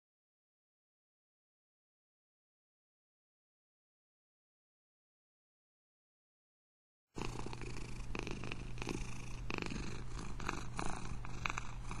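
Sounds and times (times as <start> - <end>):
cat purring: 7.2 - 12.0.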